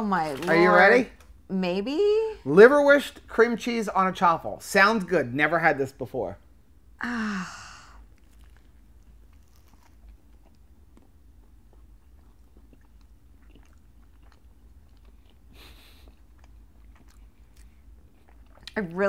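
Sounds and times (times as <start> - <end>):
people chewing and eating: 7.9 - 19.0.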